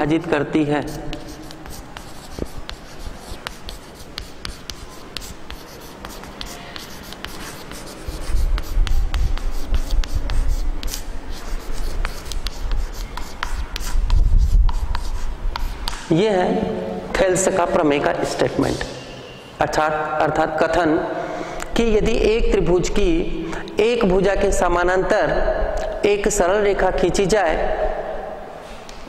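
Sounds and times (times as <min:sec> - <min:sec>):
chalk scratching on blackboard: 0:00.8 - 0:16.0.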